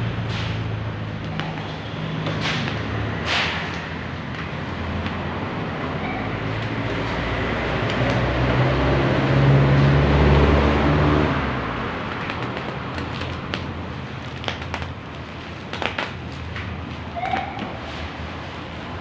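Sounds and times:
vehicle engine passing by: 0:00.0 - 0:12.1.

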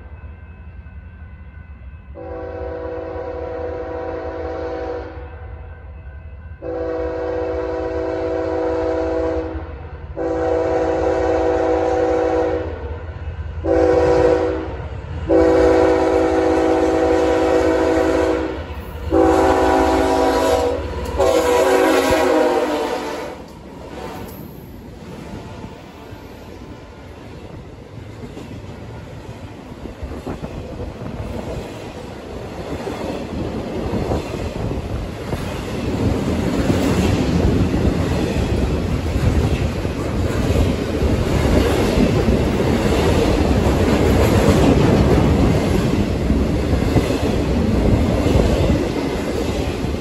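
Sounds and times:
diesel locomotives roaring past: 0:00.0 - 0:50.0
train air horn blasts: 0:02.2 - 0:05.3, 0:06.6 - 0:12.9, 0:13.6 - 0:24.3
train wheel noise: 0:06.6 - 0:50.0.

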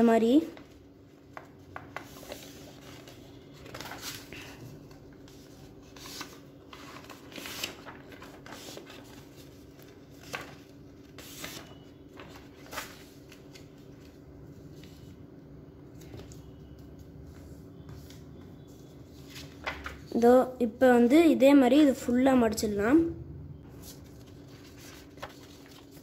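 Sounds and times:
paper rustling and crackling: 0:00.4 - 0:15.2, 0:19.1 - 0:20.2, 0:23.7 - 0:26.0.

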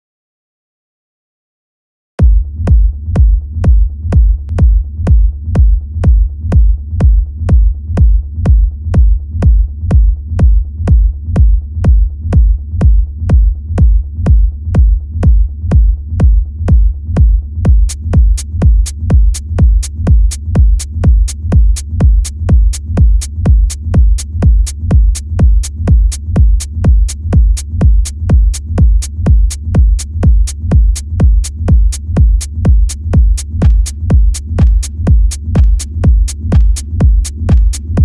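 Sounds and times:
drum machine kick: 0:02.2 - 0:38.0
hi-hat ticks: 0:17.8 - 0:38.0.

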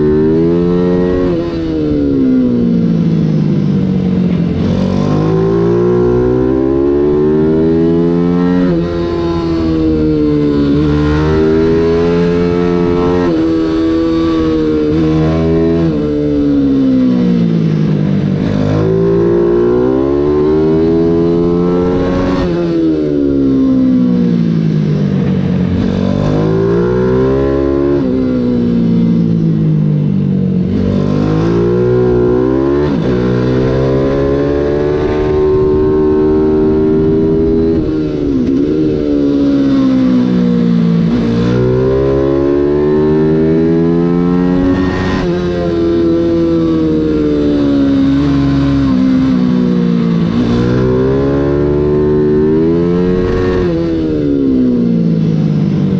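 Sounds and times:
motorbike engine revving: 0:00.0 - 0:55.9.

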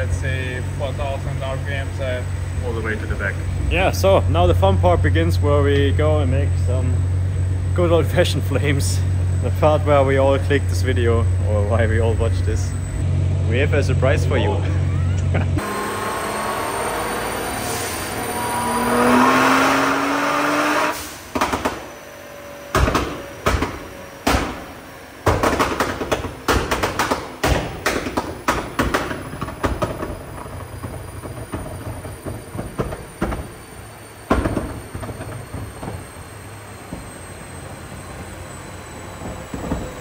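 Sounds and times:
car engine revving: 0:00.0 - 0:40.0
exhaust backfire bangs: 0:15.6 - 0:40.0
crackling exhaust pops: 0:20.9 - 0:22.0, 0:22.7 - 0:37.2.

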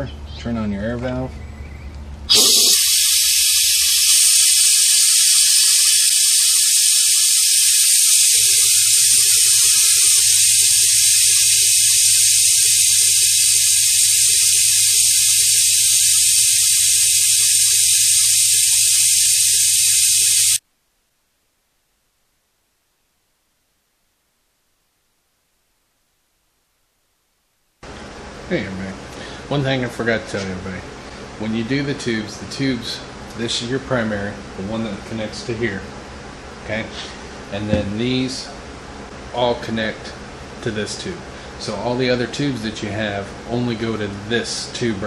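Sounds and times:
compressed air hissing and whistling: 0:02.3 - 0:20.6.

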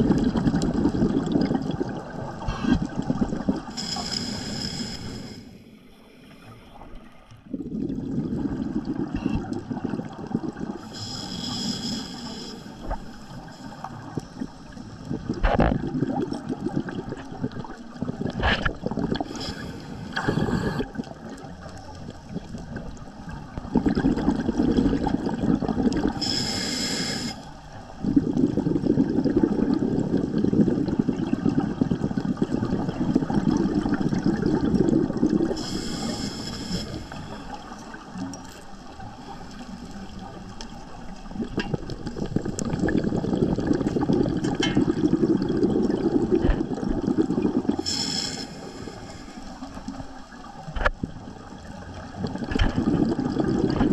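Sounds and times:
gurgling exhaled bubbles: 0:00.0 - 0:05.4, 0:06.8 - 0:53.9
regulator inhalation hiss: 0:03.7 - 0:05.7, 0:10.8 - 0:13.8, 0:19.3 - 0:20.8, 0:26.2 - 0:27.5, 0:35.5 - 0:37.5, 0:47.8 - 0:49.7.

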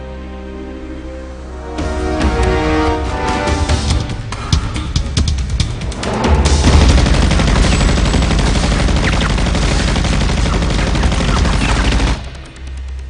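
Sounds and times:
rapid gunfire: 0:05.5 - 0:13.0.

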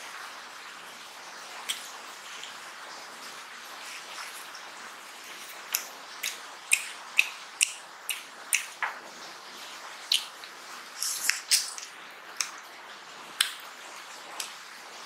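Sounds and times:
wet eating smacks: 0:05.4 - 0:08.9, 0:10.1 - 0:12.6.

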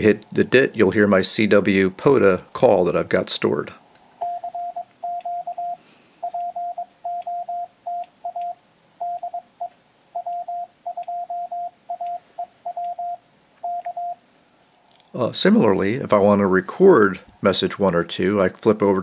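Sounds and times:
morse code tone: 0:04.2 - 0:14.2.

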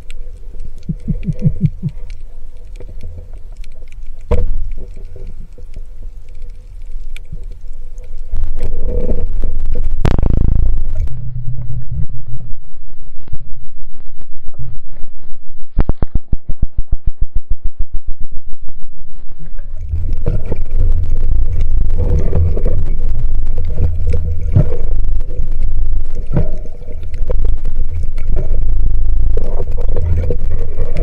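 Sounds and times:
fast regular pulsing clicks: 0:00.0 - 0:11.1, 0:19.7 - 0:31.0
muffled underwater rumble: 0:00.0 - 0:31.0.

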